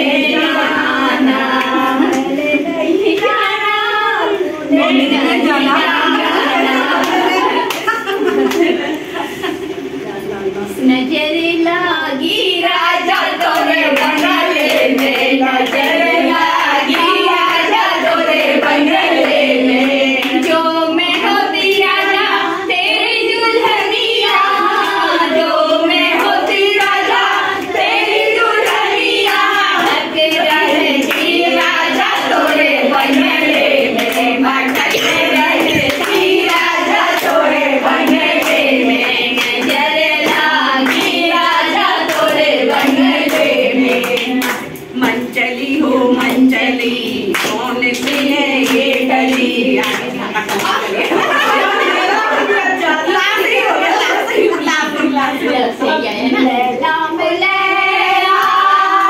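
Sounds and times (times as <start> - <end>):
women singing together: 0.0 - 10.0, 10.7 - 59.0
hand-clapping: 7.0 - 9.0, 13.2 - 17.7, 28.6 - 45.5, 46.1 - 51.6.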